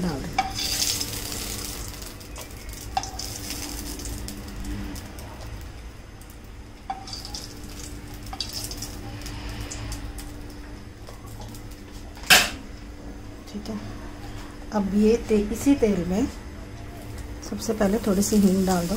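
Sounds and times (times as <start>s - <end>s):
oil sizzling in a frying pan: 0.0s - 12.6s, 17.0s - 18.9s
steady low hum: 0.0s - 18.9s.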